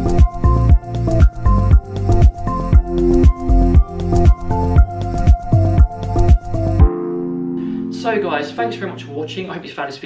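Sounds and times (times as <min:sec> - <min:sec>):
electronic music with kick drum: 0:00.0 - 0:07.5.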